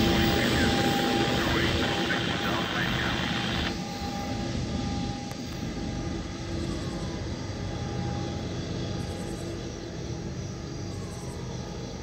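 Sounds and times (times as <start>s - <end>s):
freight train rumbling: 0.0s - 3.1s
faint steady hum: 0.0s - 3.8s.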